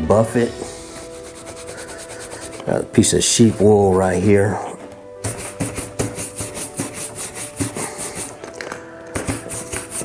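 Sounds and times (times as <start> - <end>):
brush rubbing leather: 0.6 - 3.1, 5.2 - 8.4, 9.2 - 10.0.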